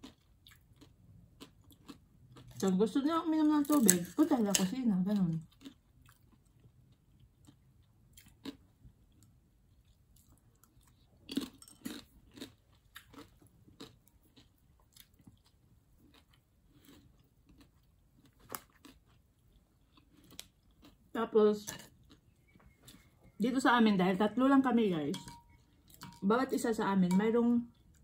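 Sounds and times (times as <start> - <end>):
crunchy chewing: 0.0 - 2.7, 5.2 - 21.2, 21.8 - 23.4.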